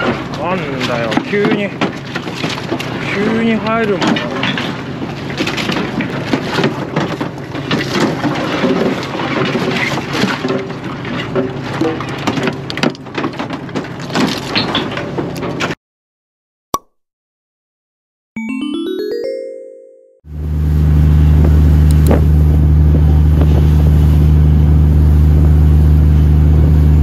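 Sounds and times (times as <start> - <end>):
short chime jingle: 18.4 - 20.3
boat engine humming: 20.3 - 27.0.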